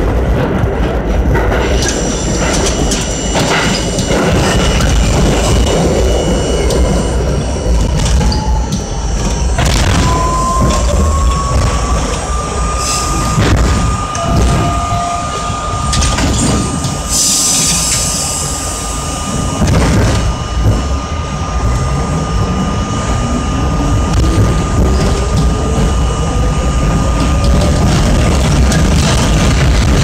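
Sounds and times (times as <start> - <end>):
train car rumble: 0.0 - 30.0
train motors whining: 1.4 - 30.0
air hiss: 17.1 - 19.2.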